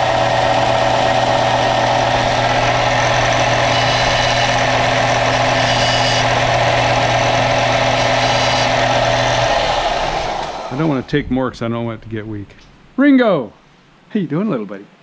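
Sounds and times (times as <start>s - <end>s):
sander motor hum: 0.0s - 11.4s
metal grinding on sanding disc: 1.7s - 10.5s.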